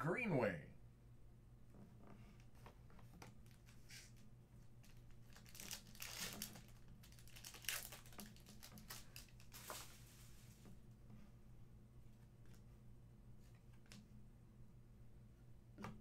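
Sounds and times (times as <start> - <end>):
faint steady hum: 0.0 - 16.0
foil wrapper crinkling: 4.8 - 10.0.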